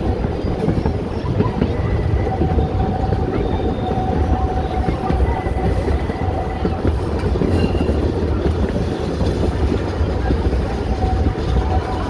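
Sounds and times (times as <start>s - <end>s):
train wheels rumbling on rails: 0.0s - 12.0s
faint wheel squeal: 0.7s - 8.2s.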